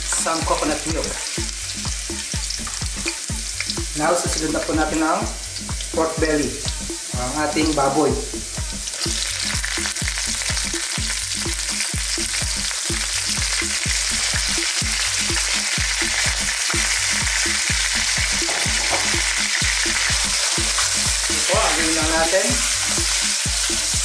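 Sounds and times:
meat sizzling in hot oil: 0.0 - 24.0.

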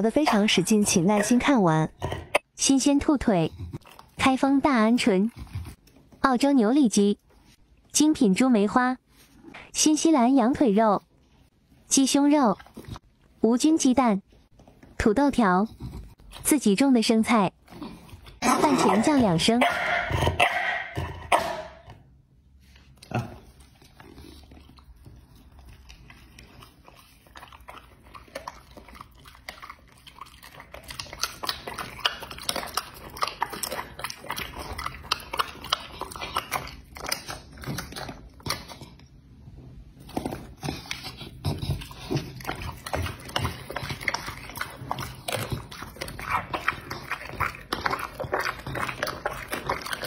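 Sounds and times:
dog chewing raw meat: 23.7 - 39.0, 40.0 - 50.0.

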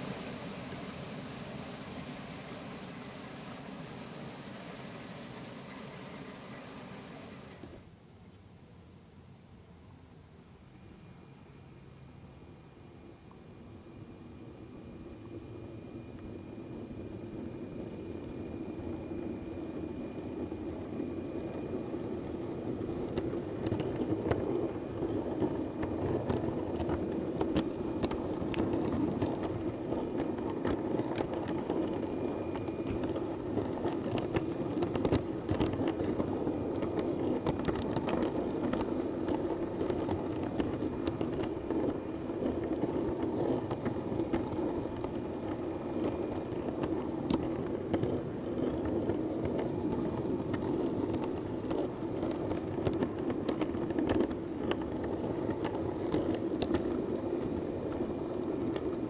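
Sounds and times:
wheels clicking over points: 0.0 - 7.9, 22.9 - 59.0
model train droning: 0.0 - 8.0, 10.7 - 59.0.

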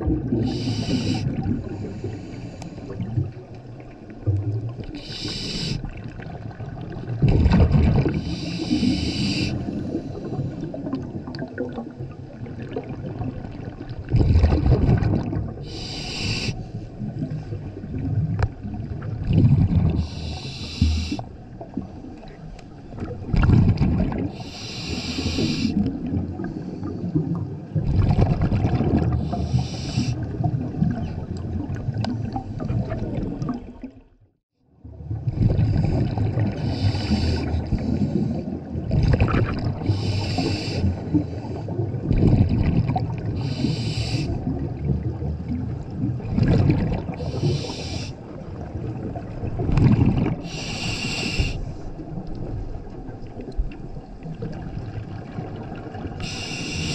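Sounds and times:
exhaled bubbles rumbling: 0.0 - 56.9
regulator hiss on inhale: 0.4 - 3.0, 4.9 - 5.9, 8.2 - 10.6, 15.6 - 16.8, 20.0 - 21.3, 24.4 - 25.8, 29.2 - 30.2, 36.6 - 38.5, 39.8 - 41.7, 43.4 - 44.4, 47.2 - 48.2, 50.4 - 52.0, 56.2 - 56.9.

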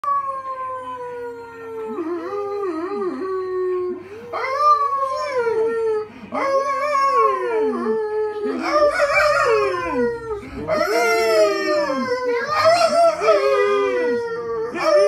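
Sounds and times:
dog howling: 0.0 - 15.0.

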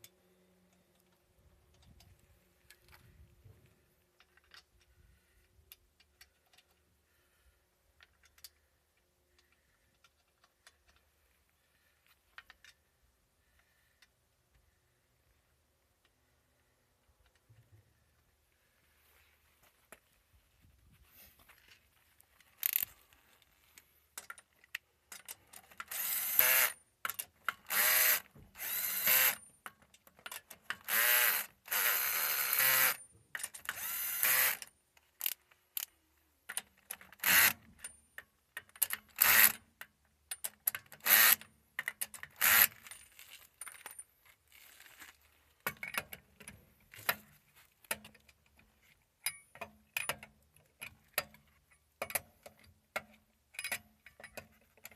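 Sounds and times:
cordless drill whirring: 25.9 - 26.8, 27.7 - 29.4, 30.8 - 33.0, 33.6 - 34.6, 37.2 - 37.5, 42.4 - 42.8.

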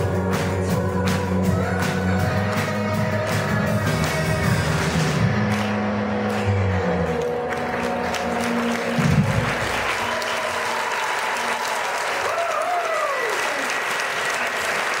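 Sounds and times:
band playing: 0.0 - 10.9
audience applauding: 0.3 - 15.0.

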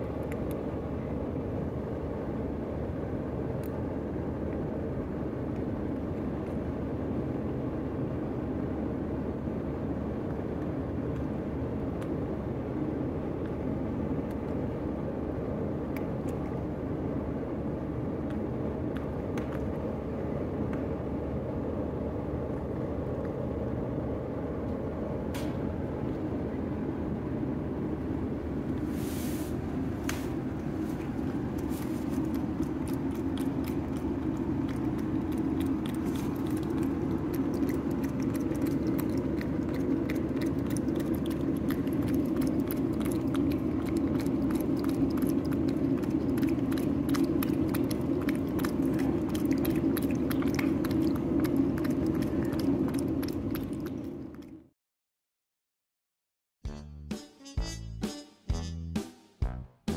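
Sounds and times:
low hum: 0.0 - 54.7
cat lapping: 30.3 - 54.7.

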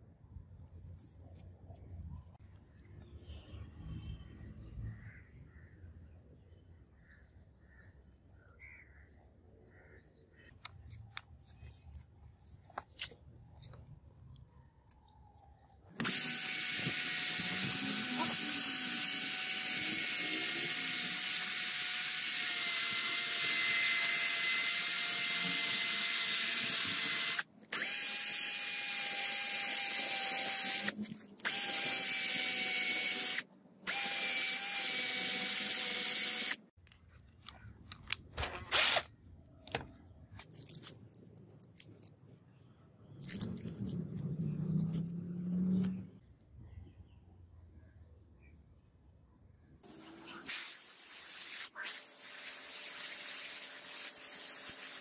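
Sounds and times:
cordless drill whining: 16.0 - 36.6, 38.4 - 39.1.

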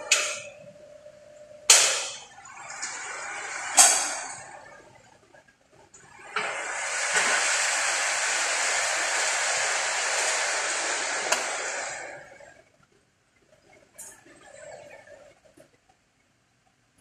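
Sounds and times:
rushing air hiss: 6.5 - 12.2.

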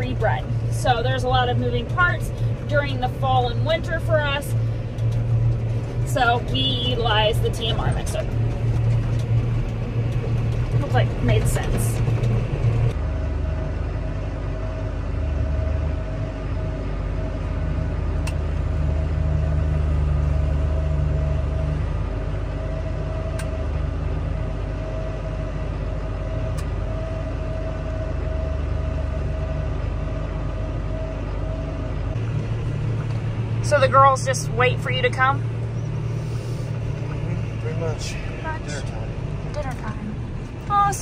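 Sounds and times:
mid-pitched whine: 0.0 - 41.0
tractor engine drone: 0.0 - 41.0.

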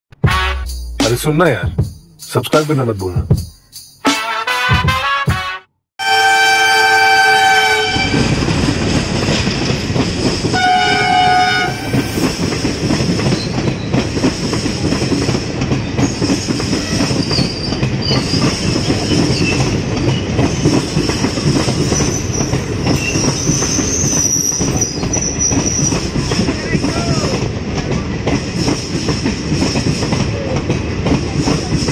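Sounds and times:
locomotive horn blasts: 0.2 - 0.8, 4.1 - 8.3, 10.6 - 12.1
train rumble: 0.3 - 3.7, 6.1 - 31.9
train wheels clattering: 7.8 - 31.9.

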